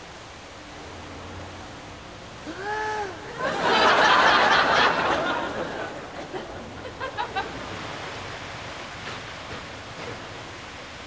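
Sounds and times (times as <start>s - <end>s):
pool water splashing: 0.6s - 11.0s
audience laughter: 3.3s - 7.8s.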